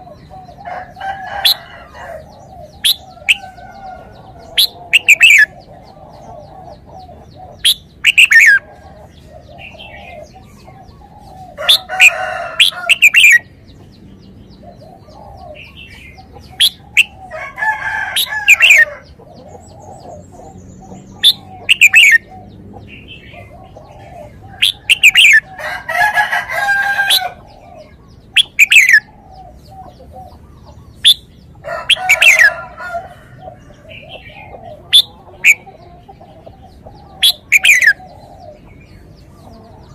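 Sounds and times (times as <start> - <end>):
fainter lower bird calls: 0.0 - 13.5.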